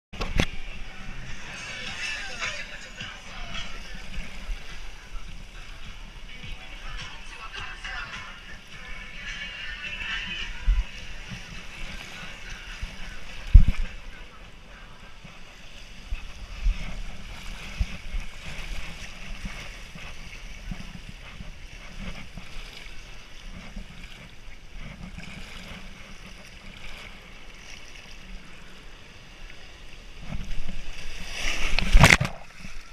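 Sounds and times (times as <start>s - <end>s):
body sliding through water: 30.3s - 32.9s.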